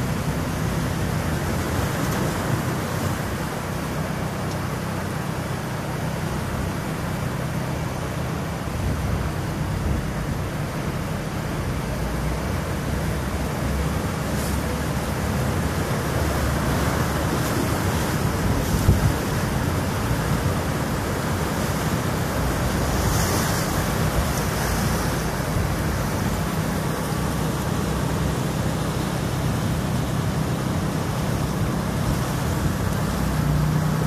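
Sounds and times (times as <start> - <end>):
river water rushing: 0.0 - 34.0
wind buffeting microphone: 16.8 - 21.1.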